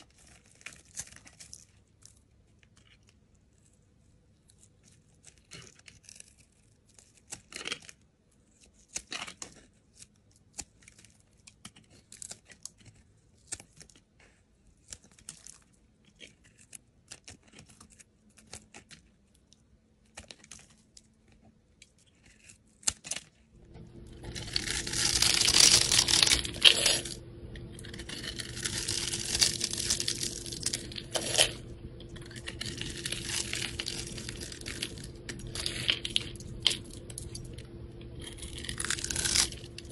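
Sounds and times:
knife shaving soap: 0.0 - 39.9
low steady hum: 23.5 - 39.9.

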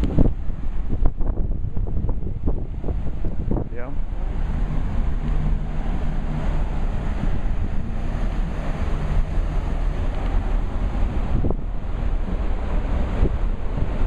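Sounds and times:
low hum: 0.0 - 14.0
rushing ship wake: 0.0 - 14.0
wind buffeting the microphone: 0.0 - 14.0.

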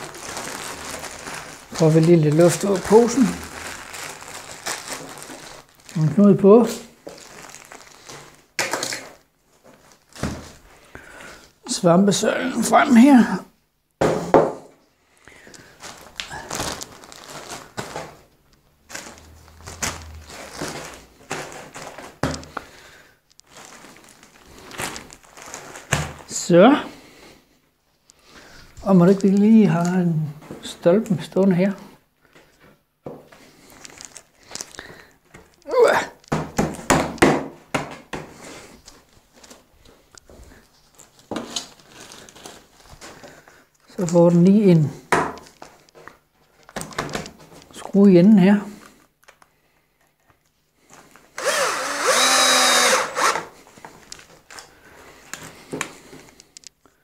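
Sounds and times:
plastic bags crinkling: 0.0 - 11.5, 15.0 - 27.3, 28.1 - 29.9, 33.3 - 37.2, 38.3 - 47.8, 48.7 - 57.0
soft handling sounds: 15.2 - 26.4, 31.9 - 36.3, 38.3 - 48.0, 48.7 - 51.4, 53.5 - 57.0.

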